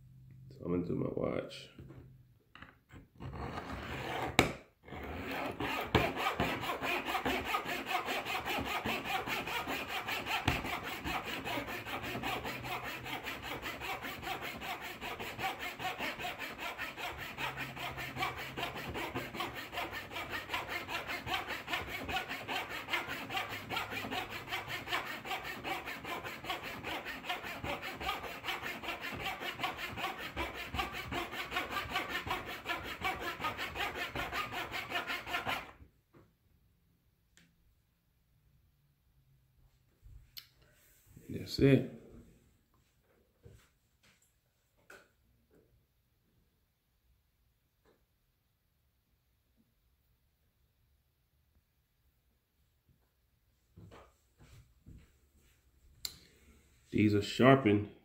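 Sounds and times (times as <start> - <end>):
blade scraping rhythmically: 5.2 - 35.7.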